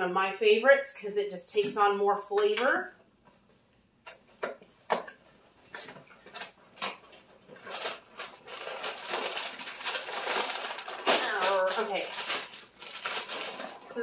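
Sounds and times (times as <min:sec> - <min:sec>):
cardboard box crinkling: 0:06.3 - 0:14.0.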